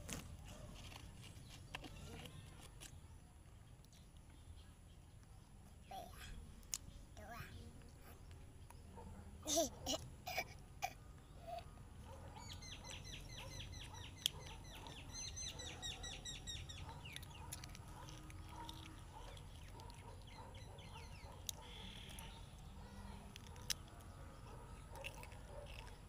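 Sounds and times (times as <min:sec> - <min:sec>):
bird chirping: 0:11.1 - 0:26.0.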